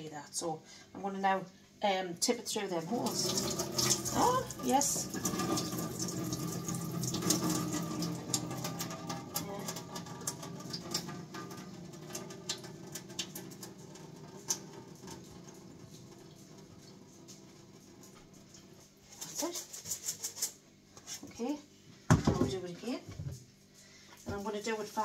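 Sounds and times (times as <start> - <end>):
water pouring into steel sink: 2.9 - 18.8
water dripping: 2.9 - 19.0.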